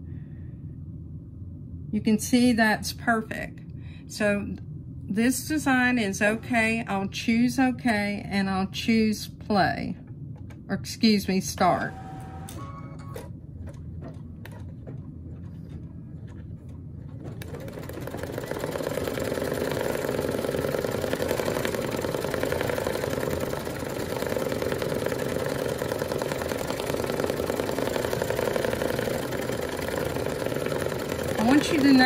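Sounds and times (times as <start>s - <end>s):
embroidery machine stitching: 17.2s - 32.0s.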